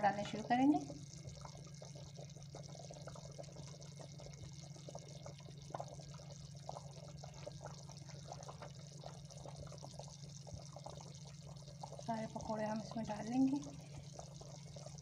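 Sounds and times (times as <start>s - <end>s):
hot oil sizzling and popping: 0.0s - 15.0s
steady low hum: 0.0s - 15.0s.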